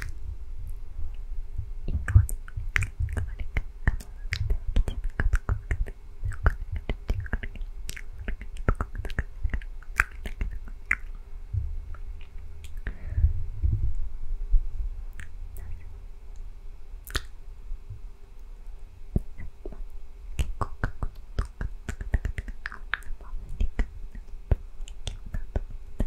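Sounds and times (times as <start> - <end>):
low muffled rumble: 0.0 - 26.0
person whispering close to microphone: 1.9 - 10.9, 15.5 - 16.0, 20.4 - 25.7
wet mouth clicks: 1.9 - 11.2, 15.1 - 15.7, 17.0 - 17.4, 20.4 - 26.0.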